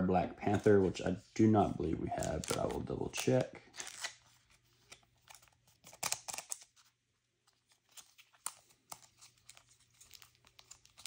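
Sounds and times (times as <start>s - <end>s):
plastic card sleeves crinkling: 0.4s - 11.0s
cards clicking: 2.2s - 4.1s, 4.9s - 6.7s.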